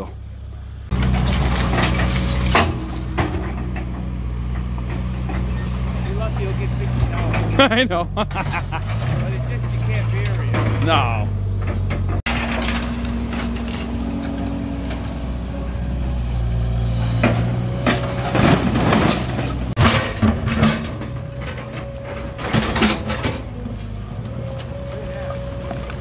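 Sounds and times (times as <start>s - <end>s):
diesel engine running: 0.0s - 26.0s
bucket scraping through debris: 0.9s - 3.6s, 7.0s - 15.3s, 16.6s - 26.0s
sharp clanks and cracks: 17.2s - 24.8s.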